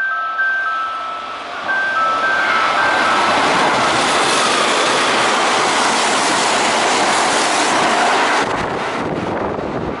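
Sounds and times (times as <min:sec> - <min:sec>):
train rushing past: 0:00.2 - 0:10.0
wind on microphone: 0:08.4 - 0:10.0.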